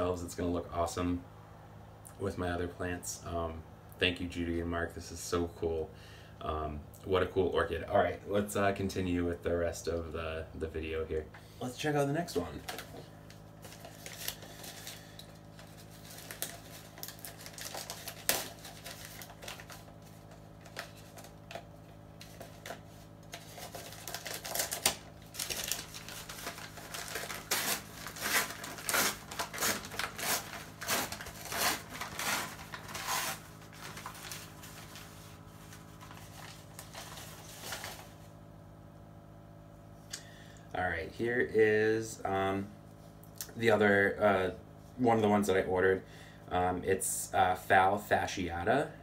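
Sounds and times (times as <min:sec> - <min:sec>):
steady low hum: 0:00.0 - 0:49.0
packaging crackling and rustling: 0:12.4 - 0:38.3.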